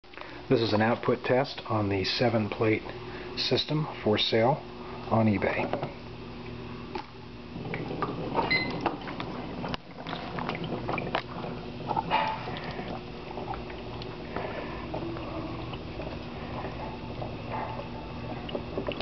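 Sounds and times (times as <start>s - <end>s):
steady low hum: 0.0s - 19.0s
gas bubbling through water: 7.4s - 19.0s.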